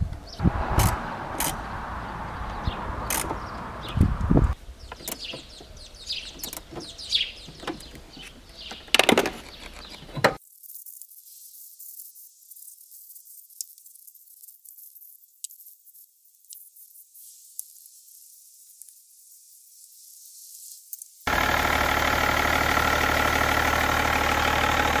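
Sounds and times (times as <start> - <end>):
birds chirping: 0.2 - 10.4
tools clicking on metal: 3.1 - 3.4.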